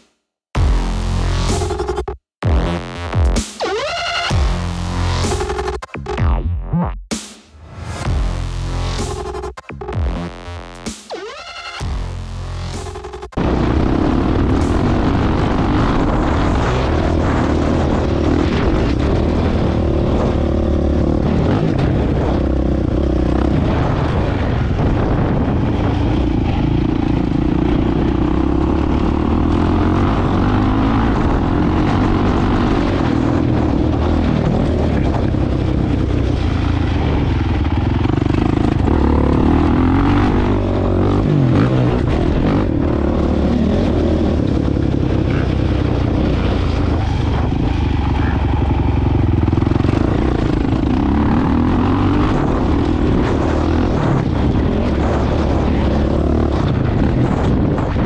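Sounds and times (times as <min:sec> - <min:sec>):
drone propellers buzzing: 0:00.6 - 0:06.5, 0:07.6 - 0:58.0.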